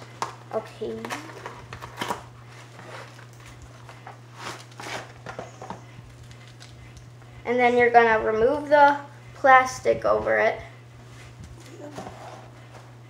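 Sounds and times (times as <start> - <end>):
steady low hum: 0.0 - 13.0
cardboard box scrapes and rustles: 4.3 - 5.2, 11.9 - 12.7.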